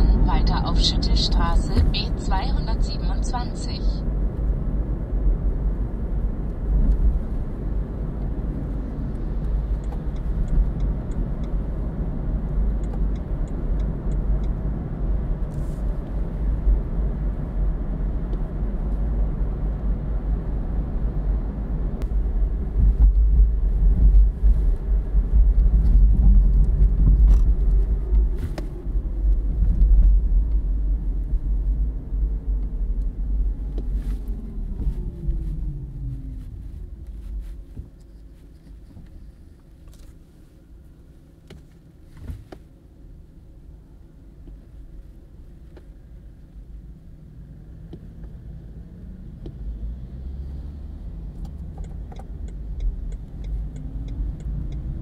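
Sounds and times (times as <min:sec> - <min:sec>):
tyre and road rumble: 0:00.0 - 0:40.3.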